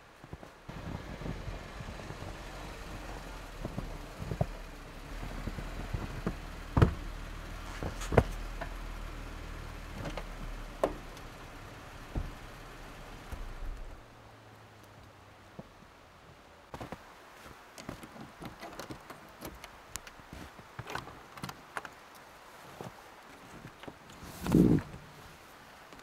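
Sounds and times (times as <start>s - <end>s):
car engine running: 0.7s - 14.2s.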